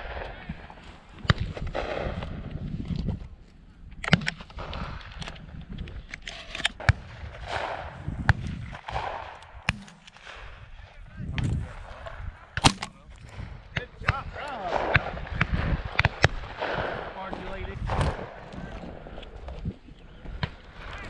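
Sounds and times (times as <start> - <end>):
wind buffeting microphone: 0.0 - 21.0
shotgun reports: 8.9 - 13.2, 13.8 - 18.4.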